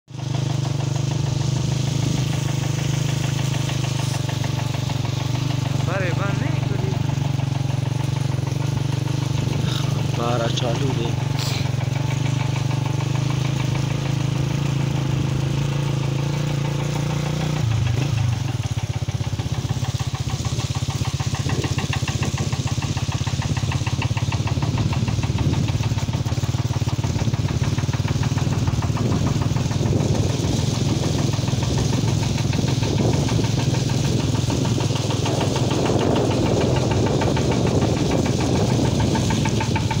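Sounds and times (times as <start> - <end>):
motorcycle engine running: 0.1 - 40.0.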